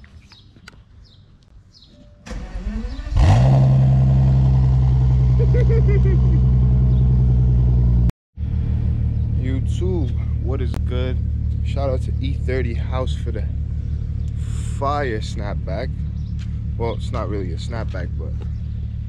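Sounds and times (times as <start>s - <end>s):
car engine cranking: 2.3s - 4.4s
car engine idling: 4.0s - 19.0s.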